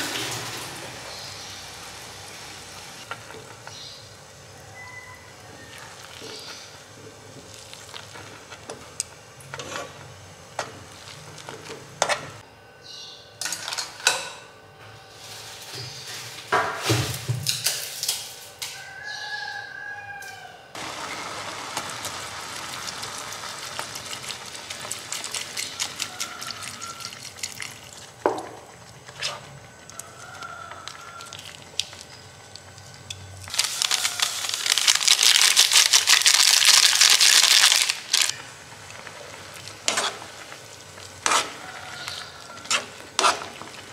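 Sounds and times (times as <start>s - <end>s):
sizzling hiss: 20.8s - 26.8s
seasoning packet rustling: 21.4s - 28.2s, 33.5s - 43.9s.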